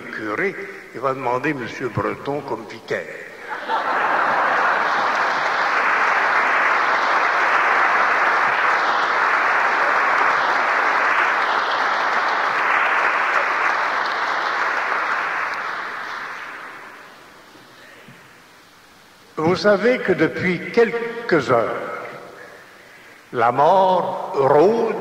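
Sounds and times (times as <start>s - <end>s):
congregation applauding: 3.5s - 18.0s.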